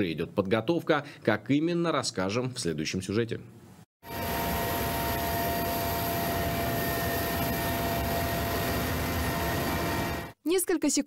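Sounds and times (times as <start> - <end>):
helicopter engine and rotor noise: 4.0 - 10.4
whining tones: 4.0 - 10.4.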